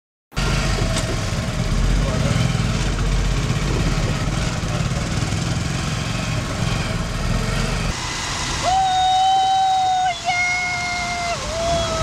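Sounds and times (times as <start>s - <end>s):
motorcycle engine running: 0.4s - 12.0s
steady high held tone: 7.9s - 12.0s.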